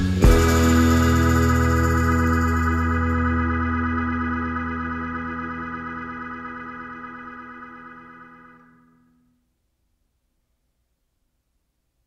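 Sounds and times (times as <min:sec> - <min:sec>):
sustained music chord: 0:00.2 - 0:08.8.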